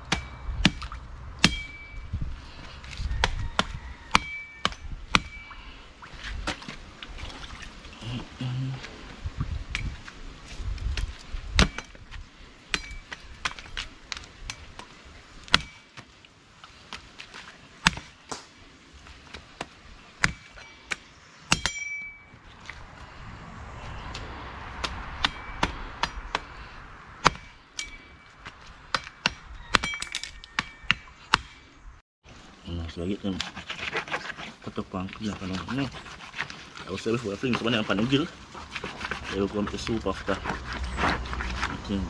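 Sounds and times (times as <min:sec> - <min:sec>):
metallic ring of blade: 0:01.4 - 0:02.1, 0:04.2 - 0:05.7, 0:21.6 - 0:22.3, 0:25.2 - 0:26.3, 0:27.4 - 0:28.4.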